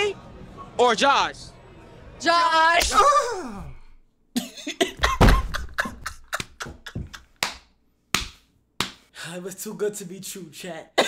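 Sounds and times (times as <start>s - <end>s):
man laughing in breathy bursts: 4.4s - 7.4s.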